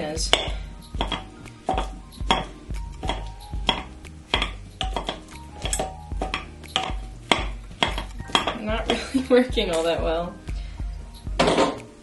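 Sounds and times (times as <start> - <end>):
masher pounding bananas in bowl: 0.3 - 9.2.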